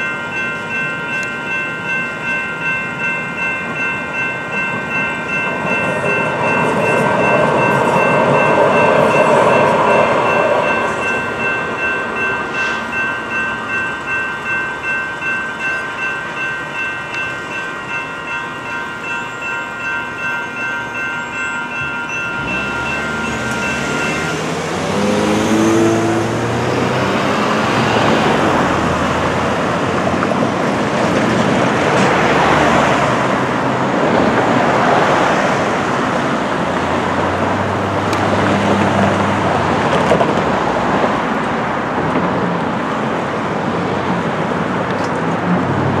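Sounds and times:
railroad crossing bells ringing: 0.0s - 45.4s
cars driving past: 21.9s - 46.0s
car engines revving: 22.2s - 41.4s.

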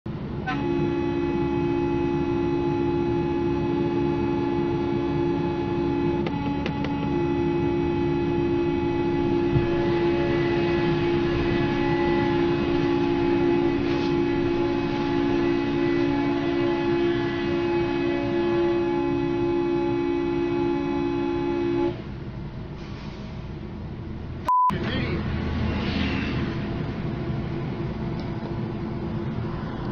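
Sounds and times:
road and engine noise: 0.0s - 29.9s
vehicle horn blaring: 0.4s - 22.0s.

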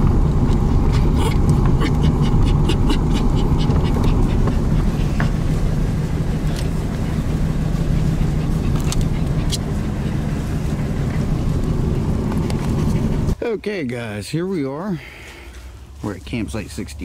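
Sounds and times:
truck engine and road rumble: 0.0s - 17.0s.

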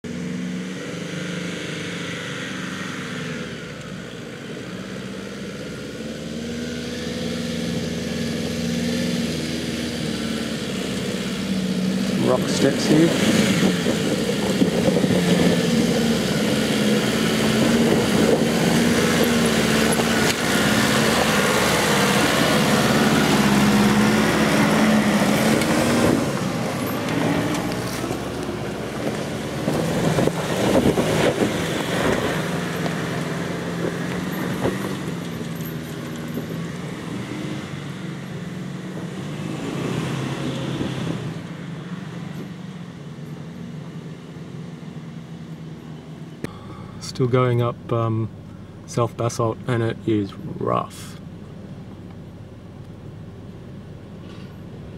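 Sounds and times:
vehicle engine under load: 0.0s - 54.9s.

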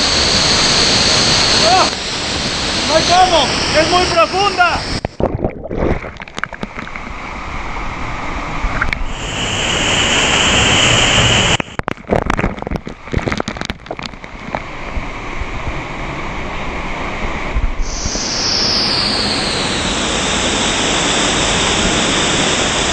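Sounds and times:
waterfall rushing: 0.0s - 5.2s, 9.0s - 11.8s, 17.9s - 22.9s
sharp crackles and knocks: 5.1s - 7.2s, 11.5s - 15.1s.

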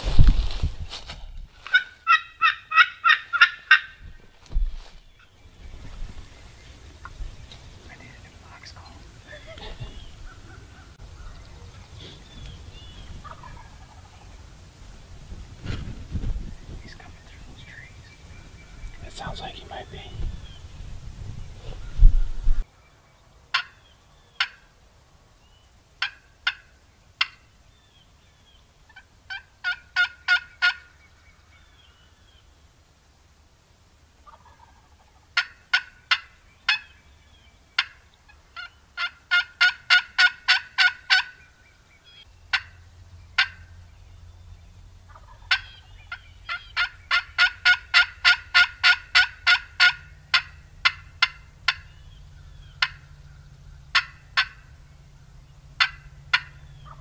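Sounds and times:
turkey call clucks and yelps: 1.7s - 4.0s, 13.2s - 14.3s, 23.5s - 24.6s, 26.0s - 27.4s, 28.9s - 31.0s, 34.2s - 37.0s, 37.8s - 42.8s, 43.4s - 43.8s, 45.1s - 53.2s, 53.9s - 54.7s, 55.8s - 57.0s.

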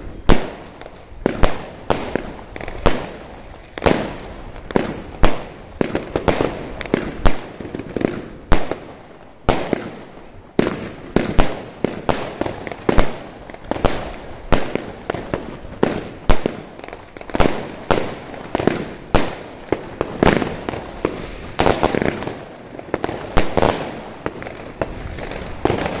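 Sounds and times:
firework cake launches and bursts: 0.0s - 26.0s.

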